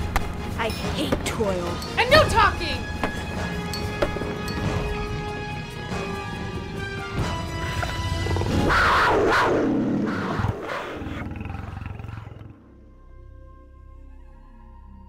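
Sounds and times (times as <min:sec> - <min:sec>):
film score music: 0:00.0 - 0:15.0
big cat roar: 0:07.5 - 0:12.7.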